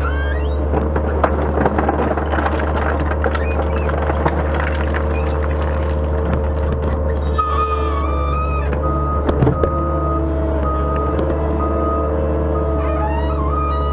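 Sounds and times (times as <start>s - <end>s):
loader engine running: 0.0s - 13.9s
stones knocking against steel bucket: 0.8s - 7.0s.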